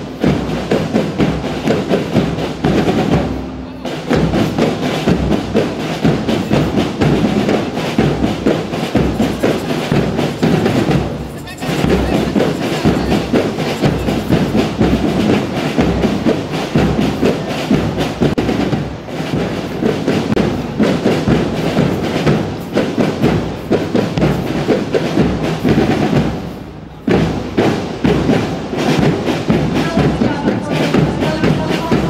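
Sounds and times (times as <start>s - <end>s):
bass drums beating fast: 4.1s - 19.0s.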